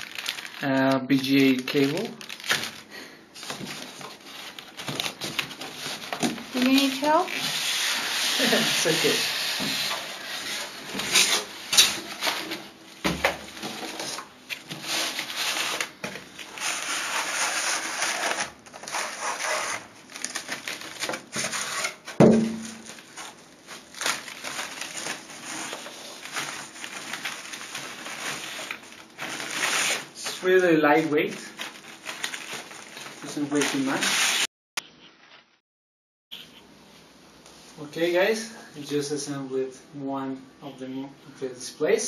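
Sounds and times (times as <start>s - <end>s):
foam packing creaking: 0.0s - 0.7s, 1.7s - 34.5s
plastic wrapping crinkling: 0.0s - 34.5s.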